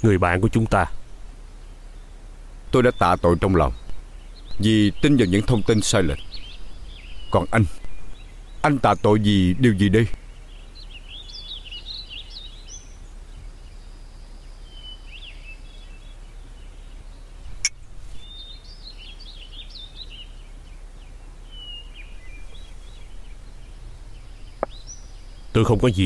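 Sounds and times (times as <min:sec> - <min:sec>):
small birds twittering: 0:00.0 - 0:26.0
steady low rumble: 0:03.4 - 0:08.8, 0:21.9 - 0:26.0.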